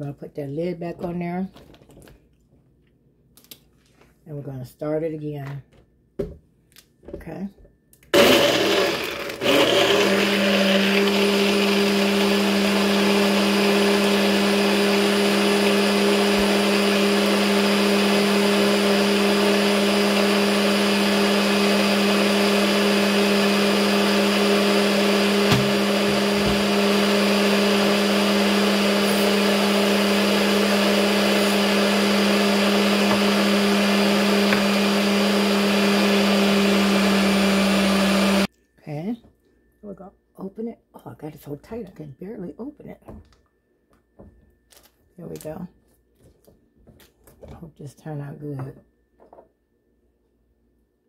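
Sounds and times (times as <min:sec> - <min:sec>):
blender motor running: 0:08.2 - 0:38.5.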